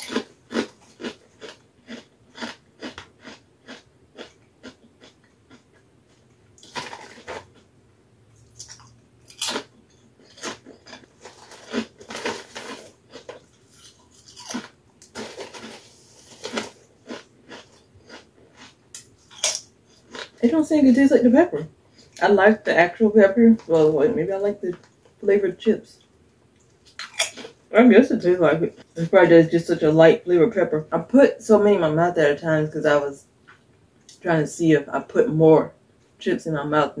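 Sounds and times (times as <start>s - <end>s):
chips crunching: 0.0s - 7.7s, 8.4s - 20.4s
chip bag crinkling: 6.6s - 7.7s, 8.4s - 20.4s.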